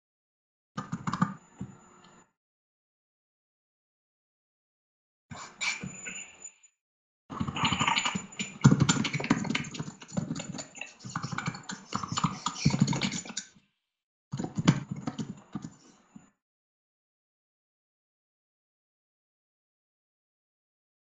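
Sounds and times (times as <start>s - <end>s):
keyboard typing: 7.3s - 13.5s.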